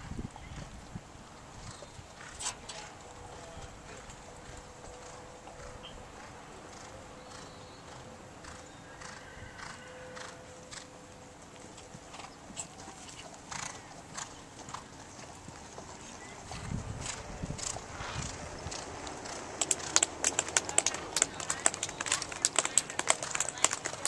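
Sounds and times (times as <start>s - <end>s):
horse hoofbeats on sand: 11.6s - 24.0s.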